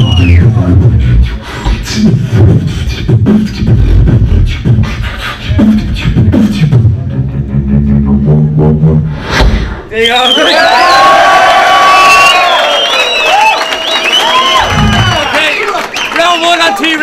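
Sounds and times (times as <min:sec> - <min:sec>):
beatboxing through microphone: 0:00.0 - 0:09.6.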